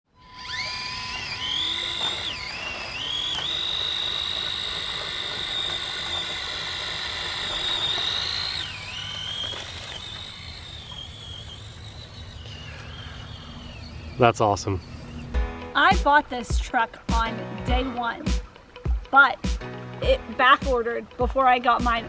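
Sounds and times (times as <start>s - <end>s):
small electric motor whining: 0.1s - 16.4s.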